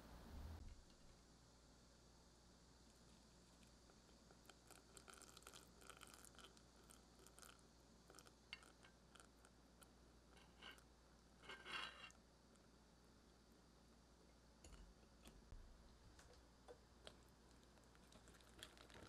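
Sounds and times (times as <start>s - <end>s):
melted butter trickling: 2.9s - 12.2s, 17.0s - 19.0s.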